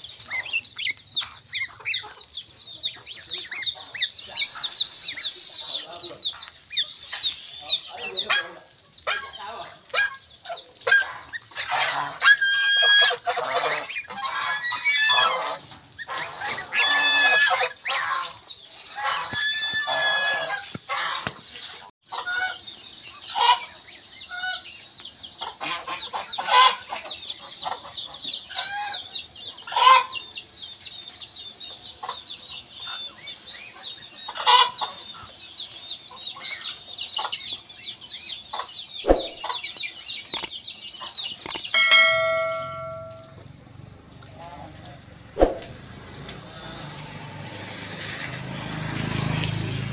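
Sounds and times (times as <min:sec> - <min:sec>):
chicks peeping: 0:00.0 - 0:45.8
chickens clucking: 0:00.0 - 0:47.0
geese calling: 0:02.9 - 0:21.5, 0:25.4 - 0:29.0, 0:29.6 - 0:30.3, 0:33.7 - 0:35.4, 0:40.3 - 0:43.4.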